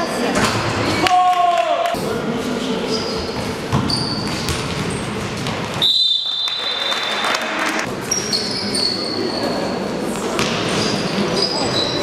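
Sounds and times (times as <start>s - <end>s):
court background noise: 0.0s - 12.0s
sneakers squeaking on gym floor: 2.9s - 7.2s, 8.0s - 12.0s
basketball bouncing on court: 3.7s - 5.8s.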